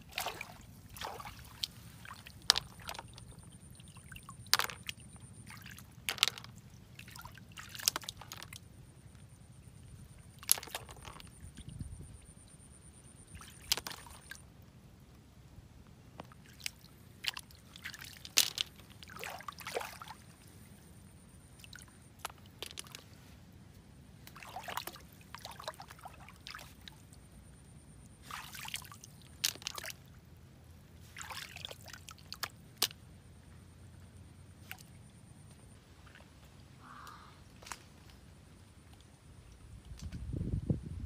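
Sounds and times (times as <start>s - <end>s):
mud squelching: 0.0s - 8.6s
water sloshing and splashing: 0.0s - 9.3s, 10.0s - 12.1s, 13.2s - 14.4s, 16.2s - 23.3s, 24.2s - 27.2s, 28.1s - 30.2s, 31.0s - 33.0s, 34.6s - 36.7s.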